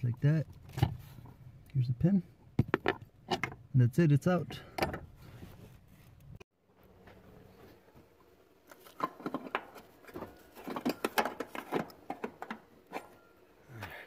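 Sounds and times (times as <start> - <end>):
plastic parts clicking and rattling: 8.7 - 12.6.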